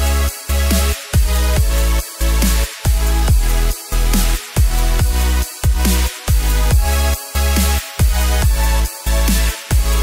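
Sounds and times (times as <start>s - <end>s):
electronic dance music with bass: 0.0s - 10.0s.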